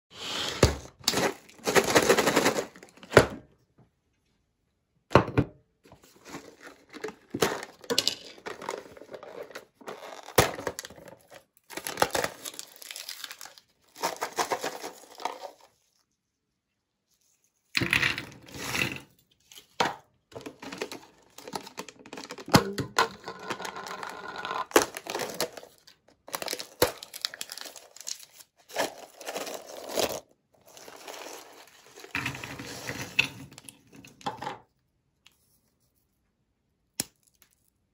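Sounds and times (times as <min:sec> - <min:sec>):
biscuits rattling and clicking: 0:00.9 - 0:03.2, 0:06.0 - 0:15.8, 0:17.8 - 0:34.7
foil lid tearing and crinkling: 0:08.4 - 0:15.6, 0:23.2 - 0:32.2.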